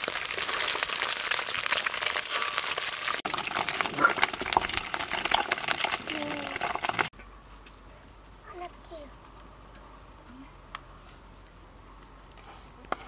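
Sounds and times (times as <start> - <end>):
hot oil sizzling in a wok: 0.0 - 7.1.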